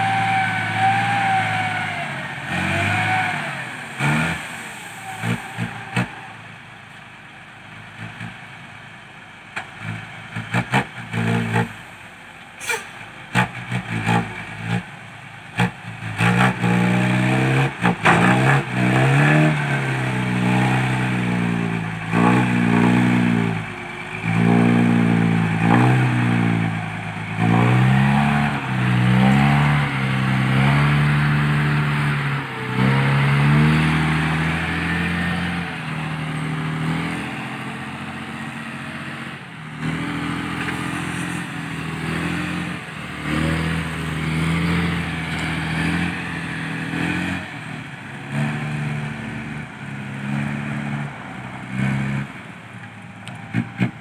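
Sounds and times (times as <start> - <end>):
diesel truck engine revving: 0.0 - 54.0.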